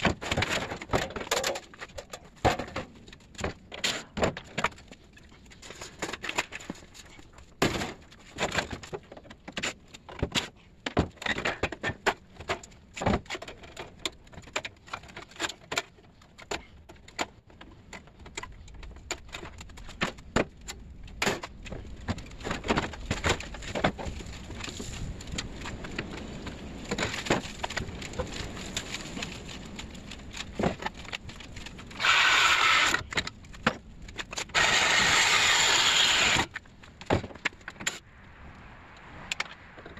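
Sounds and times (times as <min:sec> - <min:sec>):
power tool running: 0:34.5 - 0:36.5.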